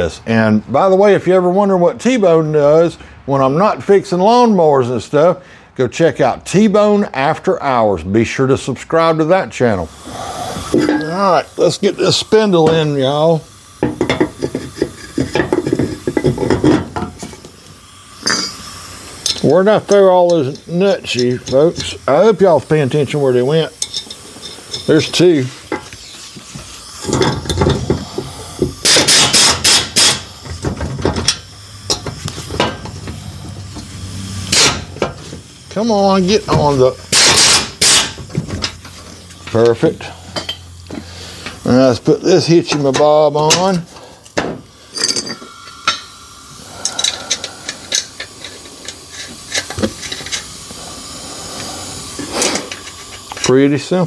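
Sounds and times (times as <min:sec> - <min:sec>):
air impact wrench hammering: 0:09.9 - 0:54.0
metal nuts clinking: 0:13.8 - 0:17.5, 0:18.2 - 0:22.2, 0:23.6 - 0:26.4, 0:27.0 - 0:28.2, 0:42.7 - 0:46.1, 0:46.8 - 0:50.5.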